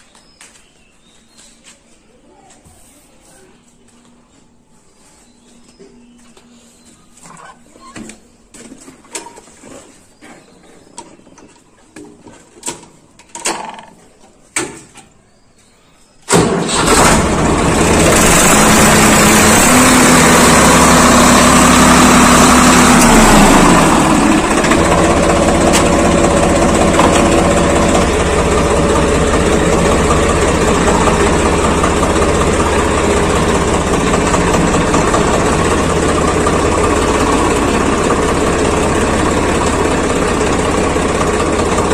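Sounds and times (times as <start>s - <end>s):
tractor diesel engine: 16.3s - 41.9s.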